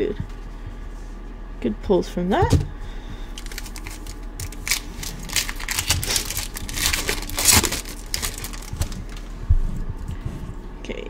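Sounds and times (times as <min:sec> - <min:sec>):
foil wrapper crinkling: 0:03.3 - 0:09.4.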